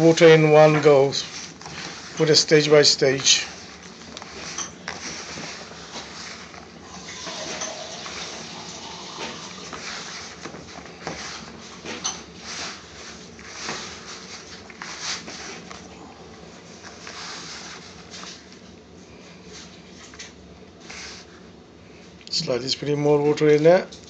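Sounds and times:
hand squishing dough in a bowl: 0.0 - 6.8.

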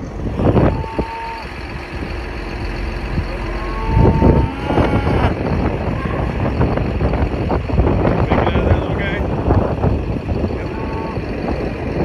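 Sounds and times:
vehicle engine running: 0.0 - 12.0
held high tones: 0.3 - 7.0.

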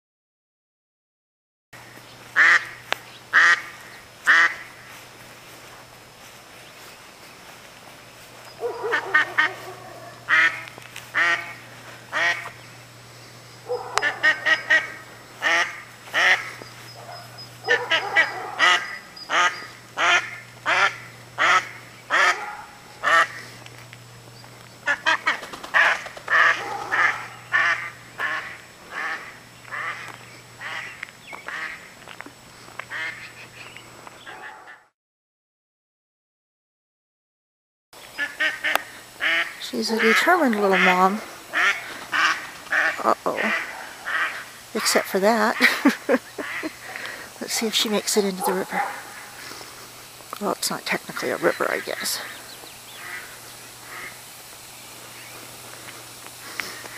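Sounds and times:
duck quacking: 2.4 - 4.9, 8.6 - 12.6, 13.7 - 23.6, 24.8 - 31.9, 32.9 - 34.9, 38.2 - 47.6, 53.0 - 54.2.

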